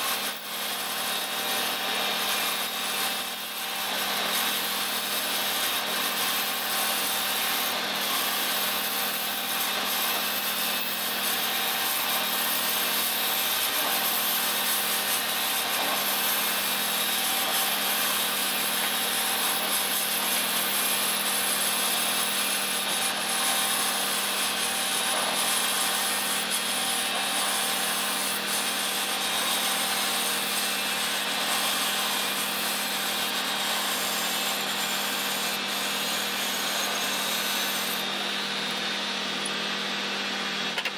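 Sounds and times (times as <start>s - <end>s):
lathe tool scraping metal: 0.0s - 40.9s
lathe motor hum: 0.1s - 40.9s.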